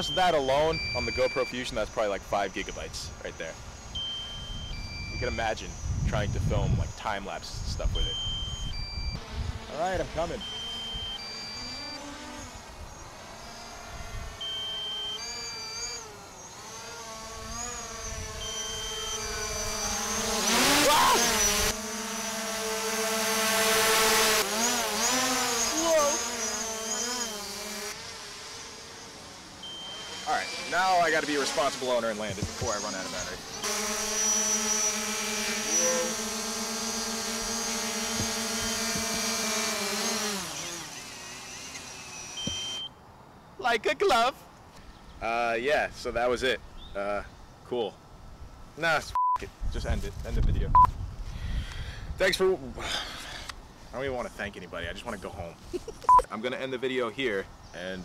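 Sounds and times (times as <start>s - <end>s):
short high beeps: 0.0s - 1.6s, 4.0s - 5.9s, 8.0s - 9.2s, 10.4s - 12.0s, 14.4s - 16.0s, 18.4s - 19.4s, 29.6s - 31.1s, 42.4s - 43.0s, 49.1s - 49.4s, 56.1s - 56.3s
drone propellers whining: 0.0s - 42.9s.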